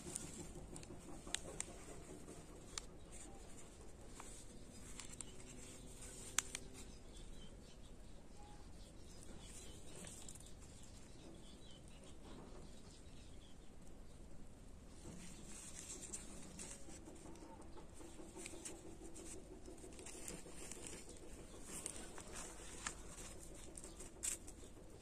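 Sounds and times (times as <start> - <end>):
plastic cell and soil crackling: 0.0 - 7.7, 14.9 - 25.0.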